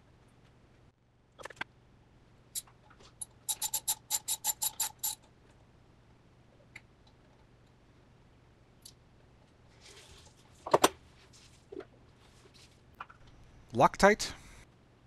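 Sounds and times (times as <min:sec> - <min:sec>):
ratchet wrench clicking: 0:03.5 - 0:05.2.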